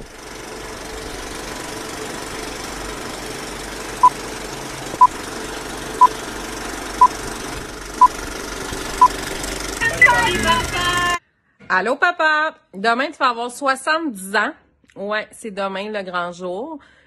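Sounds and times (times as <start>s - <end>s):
film projector rattle and hiss: 0.0s - 11.2s.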